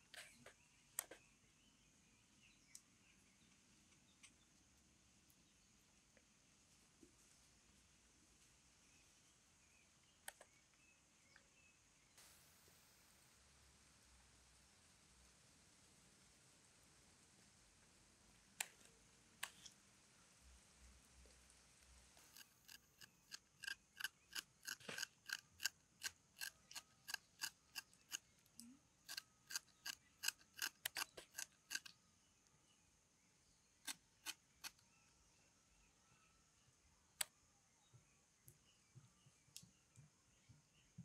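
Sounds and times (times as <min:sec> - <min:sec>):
knife scraping lime rind: 0:22.3 - 0:28.2, 0:29.1 - 0:31.9.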